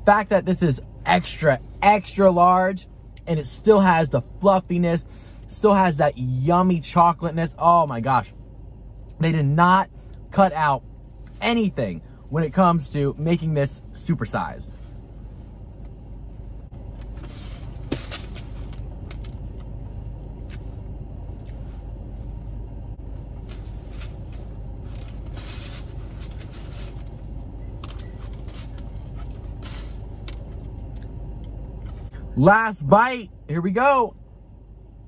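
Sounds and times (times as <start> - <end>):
car idling from inside cabin: 0.0 - 35.0
short rustles: 14.6 - 19.4, 21.5 - 30.8.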